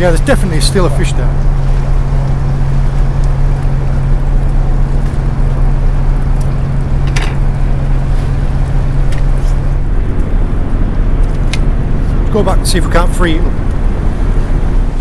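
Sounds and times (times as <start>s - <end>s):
outboard motor idling: 0.0s - 15.0s.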